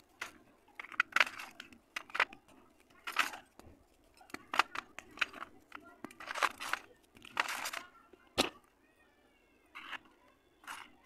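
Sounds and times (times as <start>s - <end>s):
clay chunks cracking and crunching: 0.0s - 8.6s.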